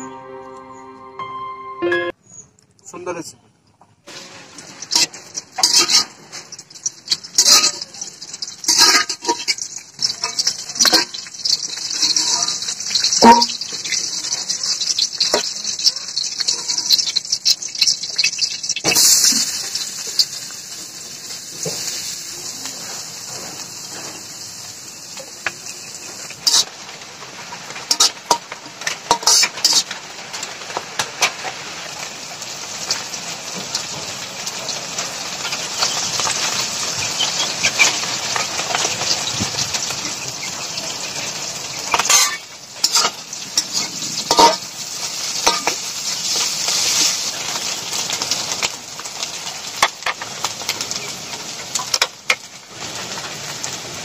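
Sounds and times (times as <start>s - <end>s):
clinks and scrapes on metal pan: 4.1s - 6.6s, 7.3s - 8.0s, 27.8s - 30.0s, 41.9s - 44.6s, 45.4s - 45.9s
onions sizzling in oil: 4.1s - 54.0s.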